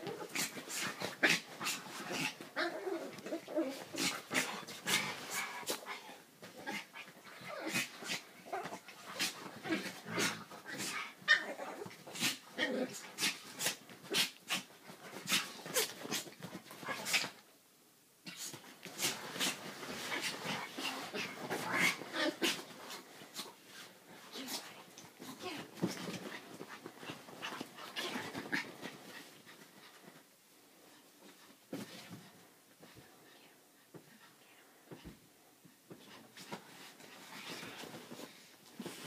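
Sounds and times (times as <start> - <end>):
dogs play-fighting: 0.0 - 17.5, 18.2 - 30.3, 30.9 - 33.3, 33.9 - 39.0.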